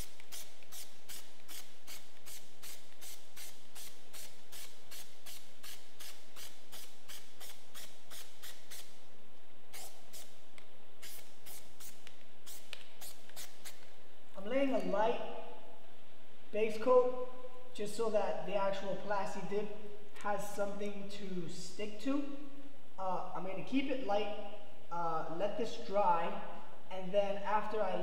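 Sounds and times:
aerosol can strokes: 0.0s - 9.0s, 9.7s - 10.4s, 11.0s - 13.9s.

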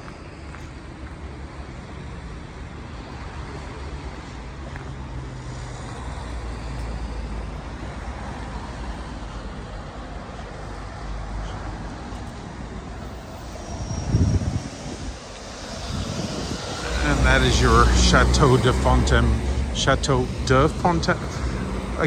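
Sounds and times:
traffic rumble: 0.0s - 22.0s
low engine hum: 9.8s - 22.0s.

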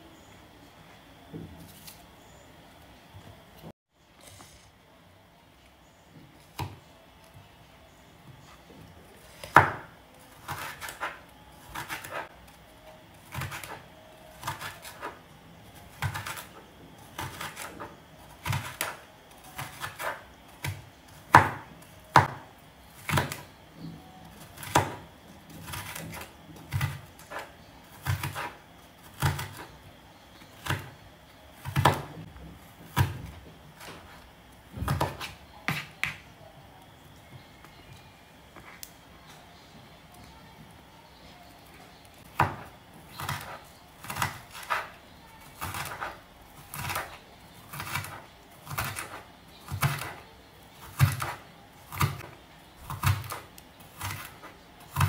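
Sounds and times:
knife chopping on cutting board: 9.4s - 12.3s, 14.4s - 15.2s, 15.9s - 19.0s, 19.6s - 23.5s, 24.5s - 25.0s, 25.6s - 29.7s, 31.6s - 32.2s, 32.8s - 34.1s, 34.7s - 36.2s, 42.3s - 44.9s, 45.6s - 50.2s, 50.8s - 52.3s, 52.9s - 53.4s.

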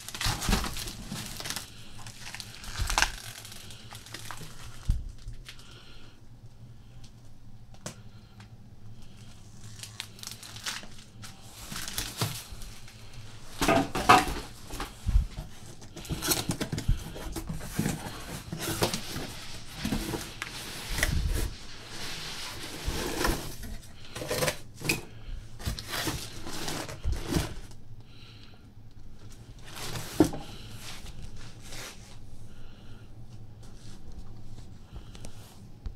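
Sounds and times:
cardboard packaging rustling: 0.0s - 5.8s, 9.1s - 27.8s, 29.2s - 32.3s.

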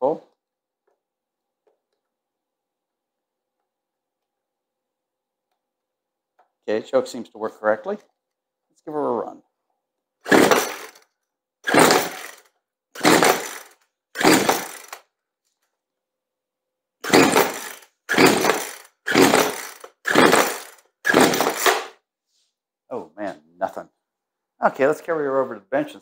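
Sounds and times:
chainsaw recoil starter pulls: 10.3s - 11.0s, 11.7s - 15.0s, 17.0s - 22.0s.

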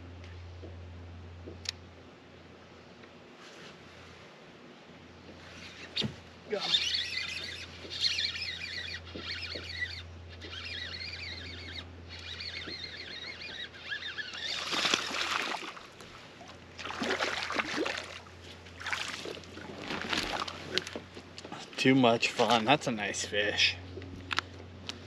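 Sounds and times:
steady low hum: 0.0s - 25.0s
fish splashing at surface: 14.5s - 15.9s, 16.8s - 20.6s.

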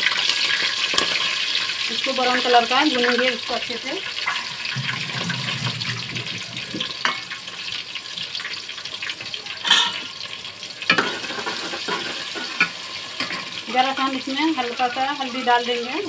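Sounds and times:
spices sizzling in hot oil: 0.0s - 16.0s
oil popping: 4.1s - 8.5s.

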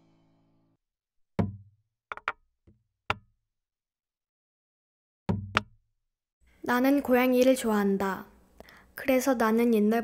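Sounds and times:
sharp knocks: 1.4s - 2.4s, 5.3s - 5.8s.

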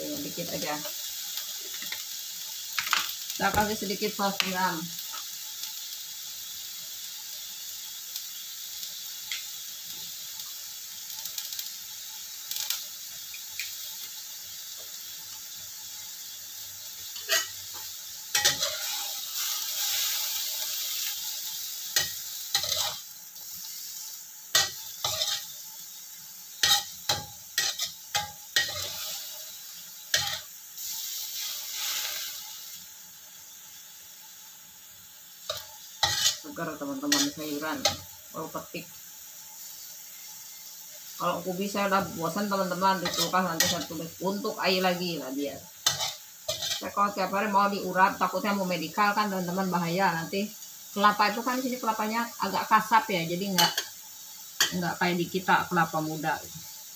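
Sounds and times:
greens sizzling in a wok: 0.0s - 56.9s
spatula scraping and knocking wok: 17.0s - 32.4s, 35.4s - 38.2s, 41.9s - 45.0s, 45.8s - 47.0s, 53.5s - 54.8s.

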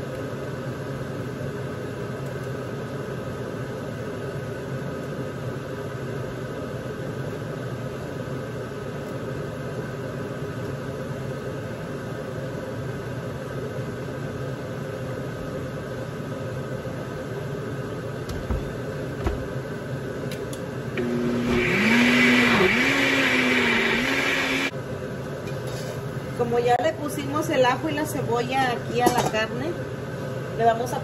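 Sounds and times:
steady background hum: 0.0s - 21.0s
soft knocks: 18.3s - 19.6s
blender motor grinding: 21.0s - 24.7s.

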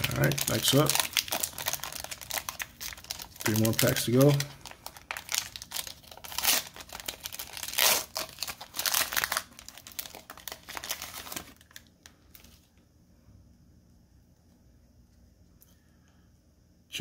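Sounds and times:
foil wrapper crinkling and tearing: 0.0s - 12.7s.

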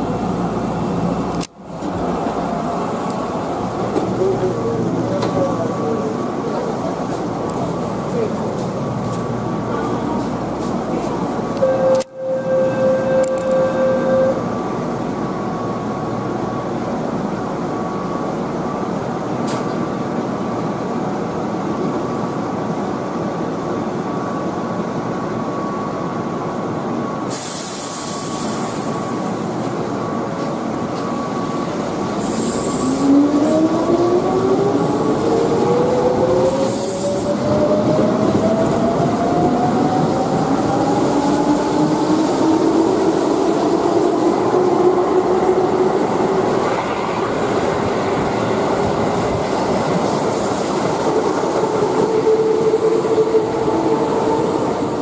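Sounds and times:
electric train humming: 0.0s - 27.0s, 28.4s - 55.0s
air hiss: 27.3s - 28.9s.

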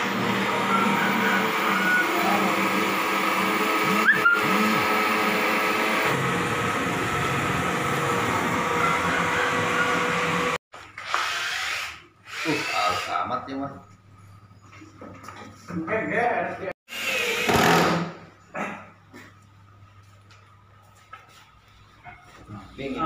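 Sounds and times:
coil winder motor whine: 0.0s - 10.6s.

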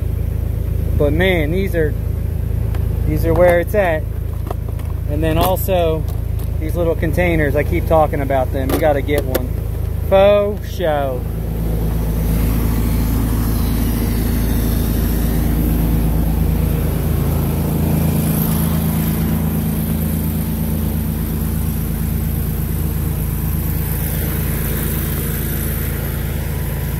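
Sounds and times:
pressure washer engine running: 0.0s - 26.9s.

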